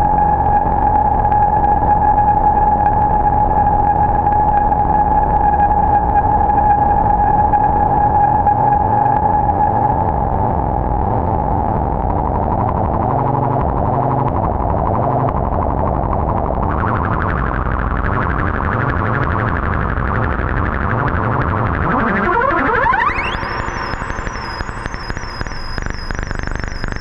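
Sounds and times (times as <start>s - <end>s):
fluttering synthesizer noise drone: 16.2s - 27.0s
upward pitch sweep: 20.7s - 27.0s.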